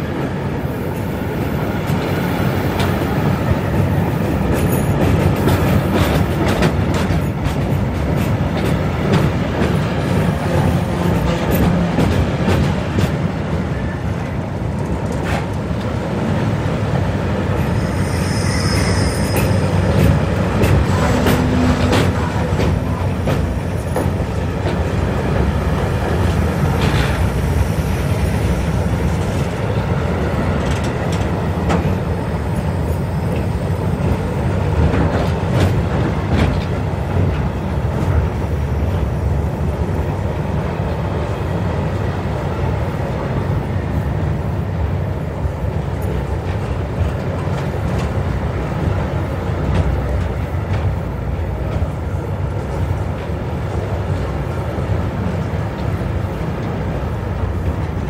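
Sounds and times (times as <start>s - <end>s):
freight train rumbling over bridge: 0.0s - 58.0s
high squeal: 17.5s - 21.0s.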